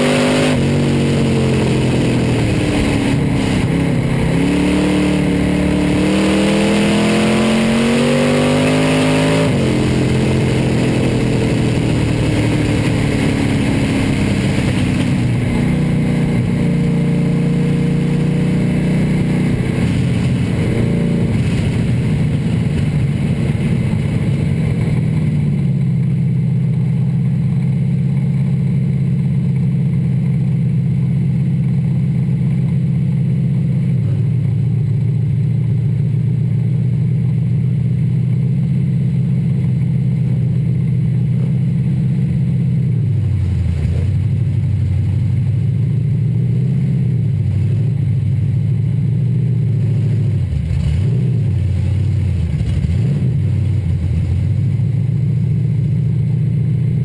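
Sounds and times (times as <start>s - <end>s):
race car engine revving: 0.0s - 25.4s, 49.8s - 54.8s.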